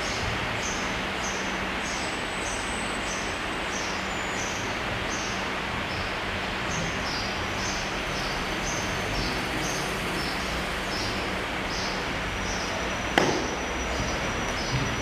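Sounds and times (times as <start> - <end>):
steady background noise: 0.0 - 15.0
sharp slap: 13.2 - 13.6.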